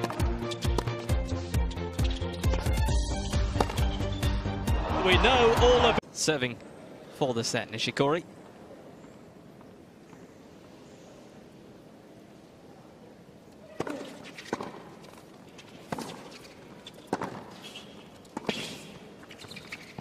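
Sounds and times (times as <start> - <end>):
racket striking tennis ball: 0.0 - 1.2, 2.0 - 4.3, 13.7 - 19.0.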